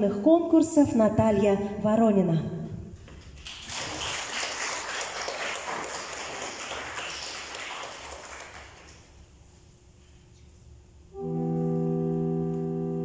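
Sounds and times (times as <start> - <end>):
audience applauding: 3.4 - 9.1.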